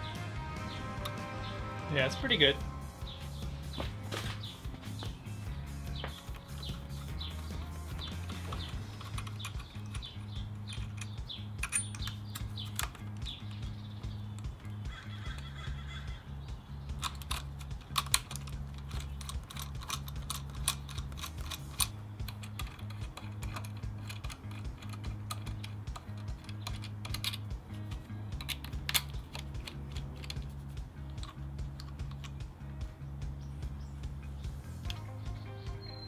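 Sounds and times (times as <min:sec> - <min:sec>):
background music with bass line: 0:00.0 - 0:36.0
clicks of small parts handled: 0:06.0 - 0:13.6, 0:16.9 - 0:32.4.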